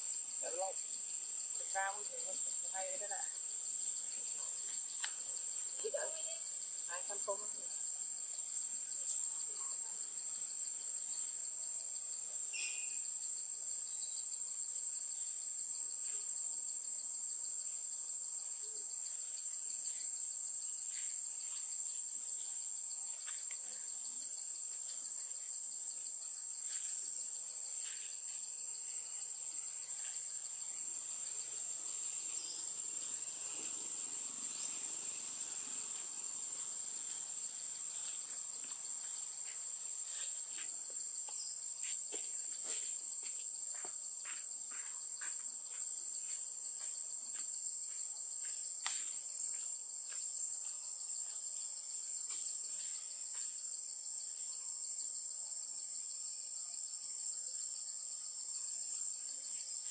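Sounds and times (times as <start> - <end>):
insects droning: 0.0 - 59.9
faint short chirps: 12.6 - 13.0.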